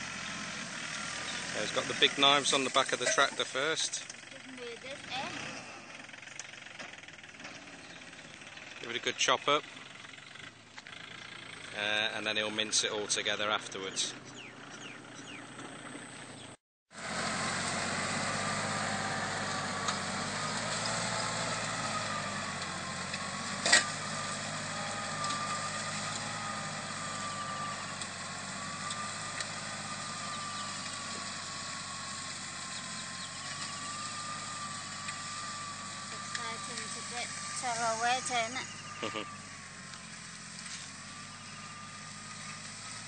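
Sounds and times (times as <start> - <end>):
tractor engine running under load: 0.0 - 43.0.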